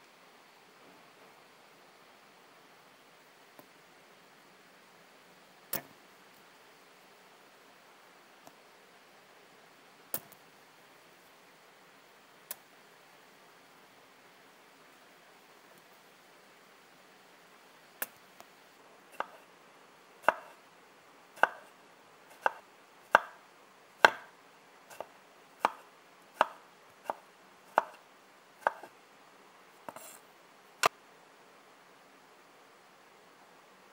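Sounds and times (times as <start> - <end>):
knife cutting tomato: 19.2 - 19.5, 20.2 - 20.6, 21.4 - 21.7, 22.3 - 23.4, 24.0 - 24.3, 24.9 - 28.0, 28.6 - 28.9, 29.8 - 30.2.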